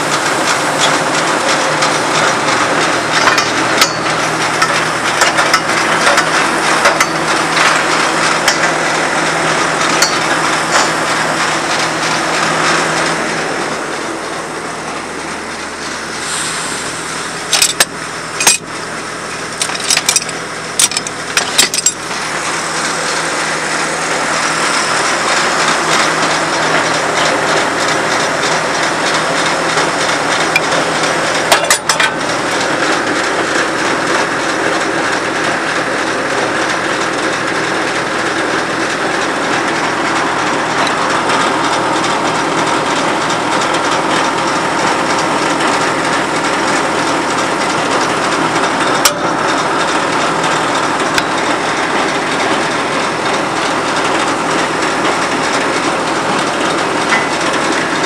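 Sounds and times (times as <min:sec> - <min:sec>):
drill rig engine running: 0:00.0 - 0:58.0
hand tools clanking in toolbox: 0:03.2 - 0:07.8, 0:17.5 - 0:18.7, 0:19.3 - 0:22.0, 0:31.5 - 0:32.2.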